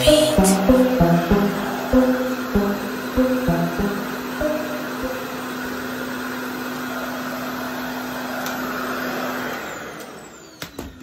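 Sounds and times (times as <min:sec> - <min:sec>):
hair dryer rushing air: 0:01.5 - 0:03.2, 0:03.9 - 0:11.0.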